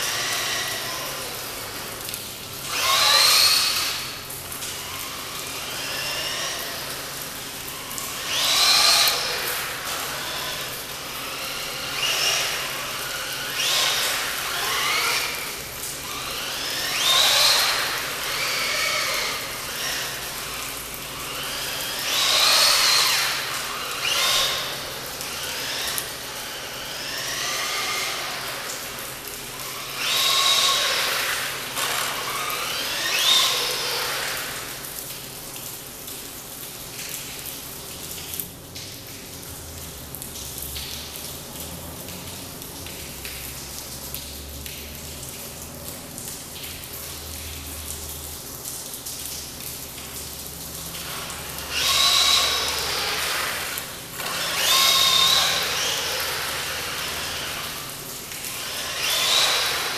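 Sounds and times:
electric motor whining: 0:00.0 - 0:34.9, 0:51.0 - 0:59.9.

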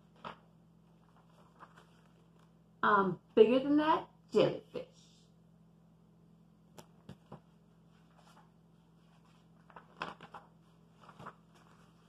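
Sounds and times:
book page turning: 0:00.0 - 0:02.5, 0:06.8 - 0:12.0.

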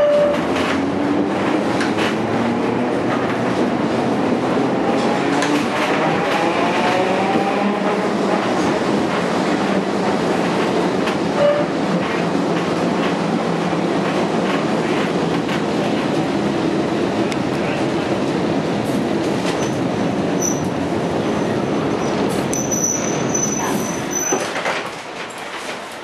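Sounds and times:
tram wheels rumbling: 0:00.0 - 0:26.0
brief squeal: 0:20.4 - 0:20.7, 0:22.0 - 0:24.5.

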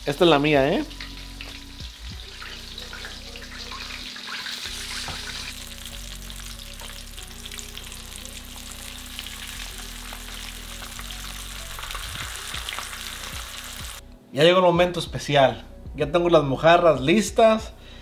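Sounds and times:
fish sizzling in hot oil: 0:00.1 - 0:14.0.

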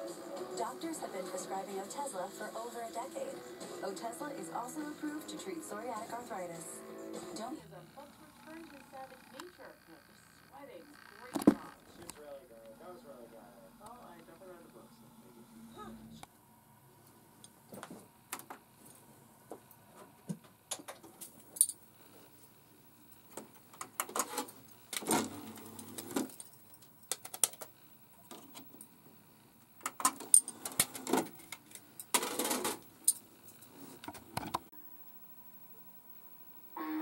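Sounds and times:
plastic clicks and clatters: 0:26.2 - 0:27.7.

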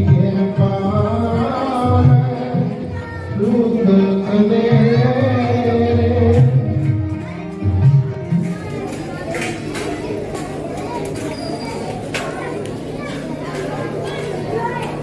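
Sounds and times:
person singing: 0:00.0 - 0:06.8.

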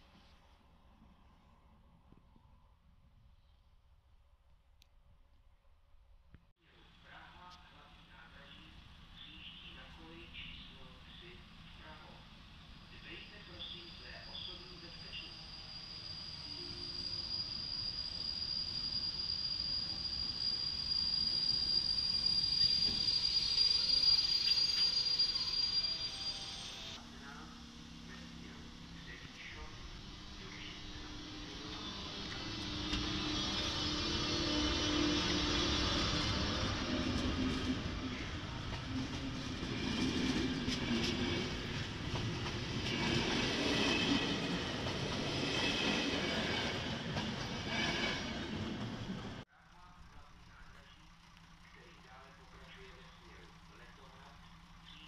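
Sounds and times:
electric locomotive whine and rumble: 0:06.8 - 0:55.0
train wheels rumbling on rails: 0:28.1 - 0:49.4.

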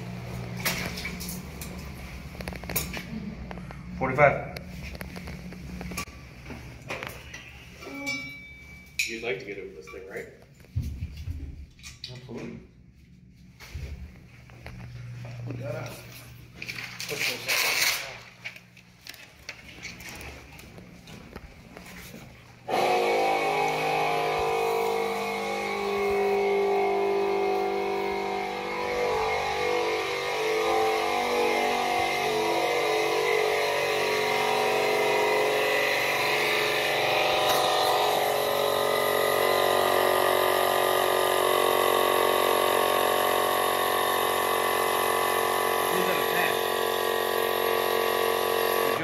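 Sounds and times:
air inflator compressor running: 0:00.0 - 0:08.0, 0:21.0 - 0:49.0.

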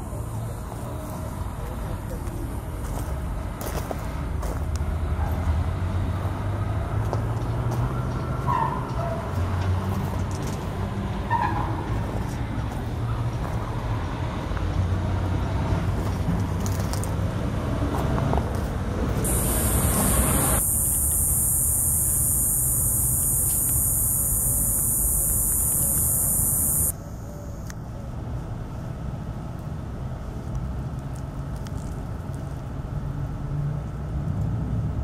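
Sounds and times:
low rumble of road traffic: 0:00.0 - 0:35.0
faint chirps: 0:19.2 - 0:27.7
steady high hiss: 0:19.2 - 0:27.7.

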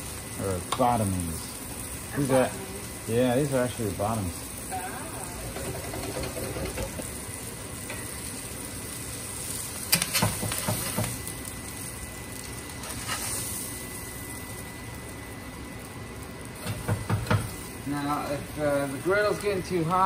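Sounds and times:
patties sizzling on a griddle: 0:00.0 - 0:20.0
metal spatula scraping griddle: 0:12.8 - 0:13.6.

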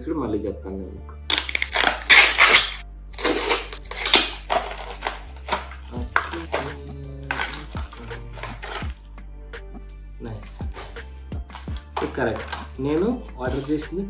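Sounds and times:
packaging crinkling: 0:01.3 - 0:06.7, 0:07.3 - 0:09.0.

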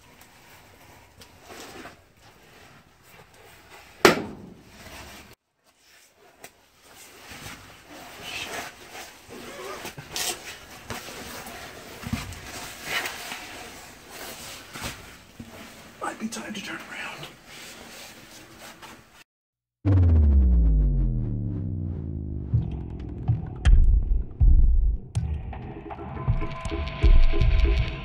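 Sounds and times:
rustling and small knocks: 0:09.8 - 0:16.0.

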